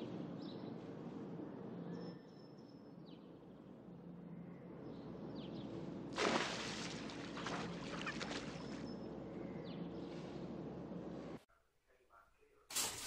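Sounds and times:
steady low hum: 0.0s - 12.7s
cat splashing in water: 6.1s - 8.9s.

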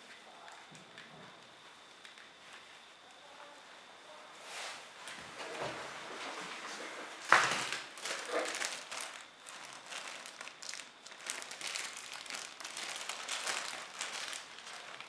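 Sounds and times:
plastic bag crinkling: 7.2s - 15.0s.

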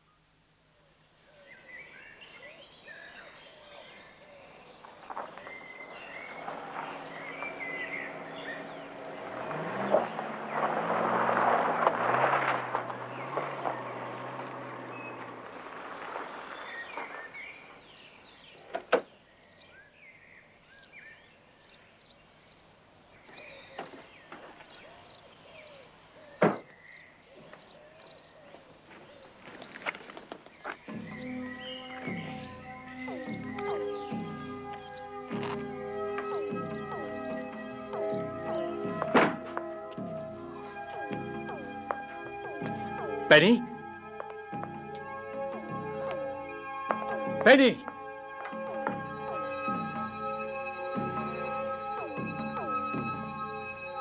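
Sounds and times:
birds singing: 1.0s - 47.8s, 48.6s - 54.0s
car engine: 4.8s - 18.8s, 31.0s - 54.0s.

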